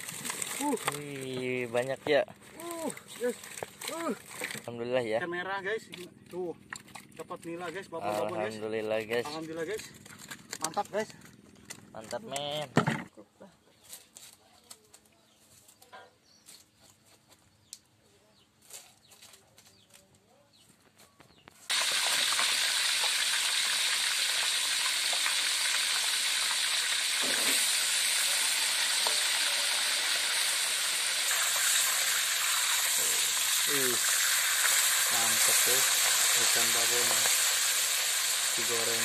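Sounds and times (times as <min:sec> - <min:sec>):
fish deep-frying in oil: 0:00.0 - 0:01.7, 0:21.7 - 0:39.0.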